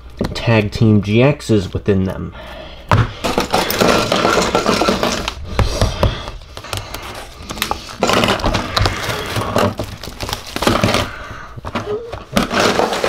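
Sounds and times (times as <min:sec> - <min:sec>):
plastic wrap crinkling and tearing: 0:03.5 - 0:13.0.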